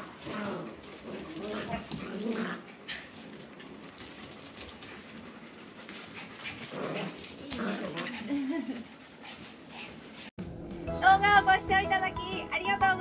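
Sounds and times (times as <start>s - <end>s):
dogs panting: 0.0s - 10.4s.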